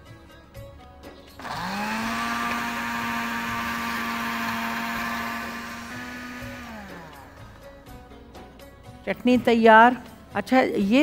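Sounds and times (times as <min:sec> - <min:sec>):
electric blender grinding: 0:01.4 - 0:07.9.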